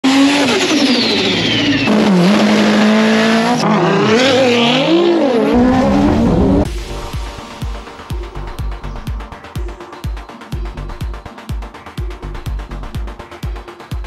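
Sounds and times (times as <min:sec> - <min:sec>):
tire screech: 0:00.0 - 0:06.7
race car engines revving: 0:00.0 - 0:07.0.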